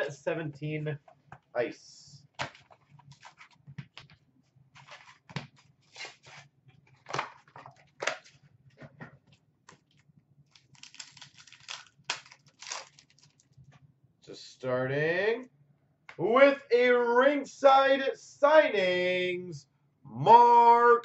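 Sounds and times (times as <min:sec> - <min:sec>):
foil packs crinkling and tearing: 0:10.5 - 0:13.5.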